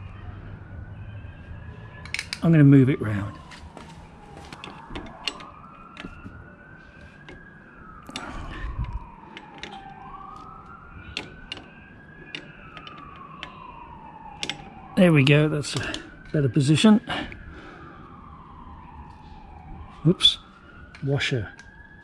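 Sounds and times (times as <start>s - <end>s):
faint siren wailing: 0.0s - 22.0s
pliers clicking on metal: 2.1s - 2.4s, 12.3s - 13.6s, 14.4s - 14.7s.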